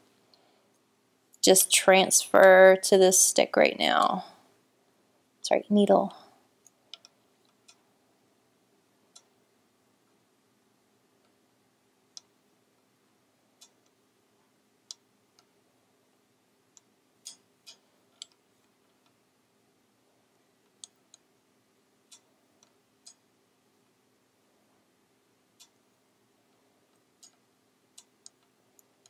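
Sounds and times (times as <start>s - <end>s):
faint low hum: 0.0s - 29.0s
knitting needles clicking: 6.6s - 7.9s, 9.1s - 9.4s, 12.1s - 12.9s, 13.6s - 14.0s, 14.8s - 15.6s, 16.7s - 19.2s, 20.6s - 21.3s, 22.0s - 23.3s, 25.6s - 25.9s, 26.5s - 29.0s.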